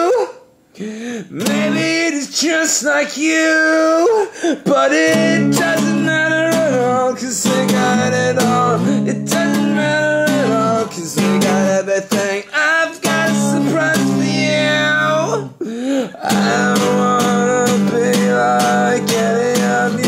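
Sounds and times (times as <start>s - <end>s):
person singing: 0.0s - 20.0s
acoustic guitar strumming: 1.4s - 2.5s, 4.7s - 15.5s, 16.2s - 20.0s.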